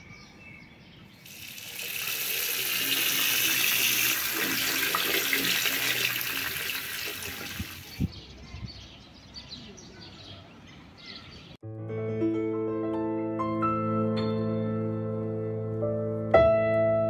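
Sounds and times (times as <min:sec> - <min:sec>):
tap water running into sink: 0:01.3 - 0:08.0.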